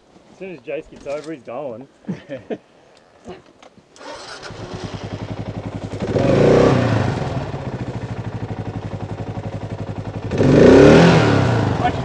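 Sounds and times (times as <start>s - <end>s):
motorcycle engine revving and idling: 4.0s - 12.0s.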